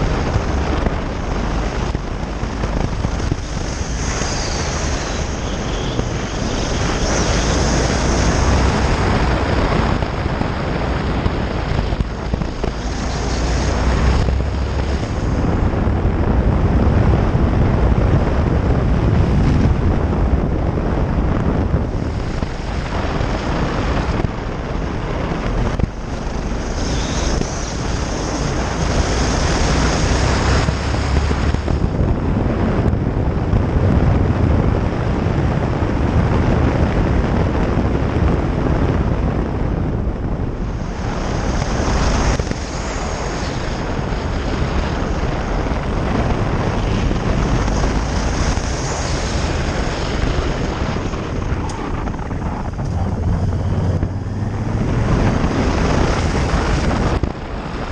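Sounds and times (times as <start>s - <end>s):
motorcycle engine: 0.0s - 32.0s, 46.2s - 57.2s
wind buffeting microphone: 0.0s - 57.9s.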